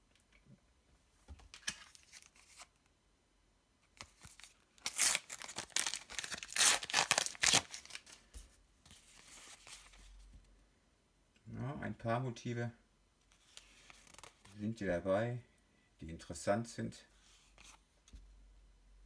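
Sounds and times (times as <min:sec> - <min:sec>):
paper packet tearing: 0:04.1 - 0:08.1
wrapper crinkling and rustling: 0:04.1 - 0:08.2.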